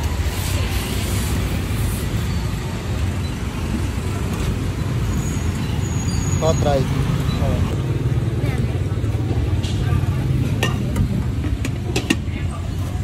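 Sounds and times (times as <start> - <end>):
vehicle engines rumbling past: 0.0 - 13.0.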